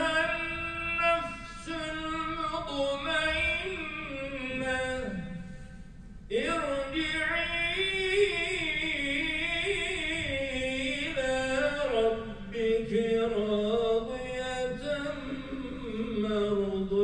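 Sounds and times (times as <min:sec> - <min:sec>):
solo voice chanting: 0:00.0 - 0:05.6, 0:06.3 - 0:17.0.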